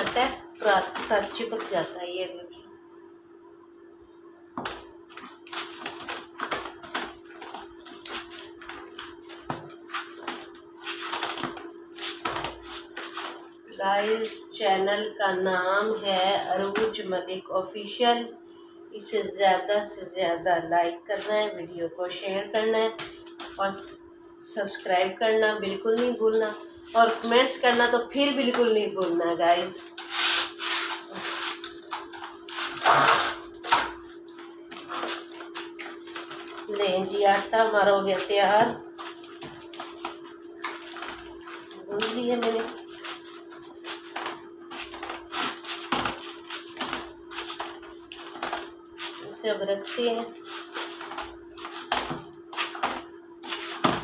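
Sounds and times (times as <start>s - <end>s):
hands kneading dough: 0.0s - 2.2s, 4.6s - 14.4s, 25.8s - 54.0s
steady hum: 0.0s - 54.0s.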